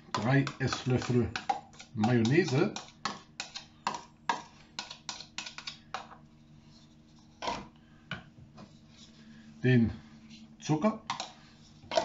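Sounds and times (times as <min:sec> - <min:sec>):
spoon scraping plastic bowl: 0:00.0 - 0:07.7.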